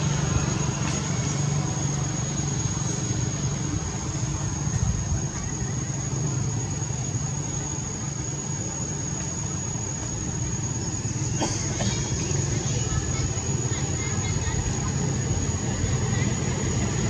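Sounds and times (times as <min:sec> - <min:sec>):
high-pitched whine: 0:00.0 - 0:11.3.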